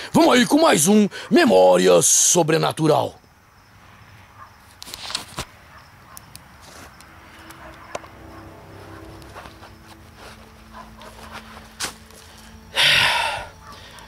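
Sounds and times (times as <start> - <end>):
camera handling rustling: 4.7 - 5.5.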